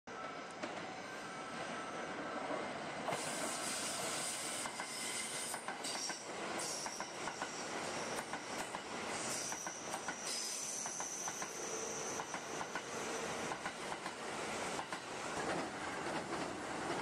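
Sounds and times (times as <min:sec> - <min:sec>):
train running past: 0:00.1 - 0:17.0
high wheel squeal: 0:09.2 - 0:13.3.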